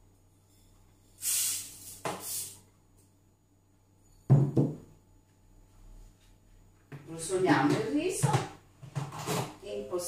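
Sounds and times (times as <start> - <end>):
glass bowl knocking on table: 4.3 - 4.8.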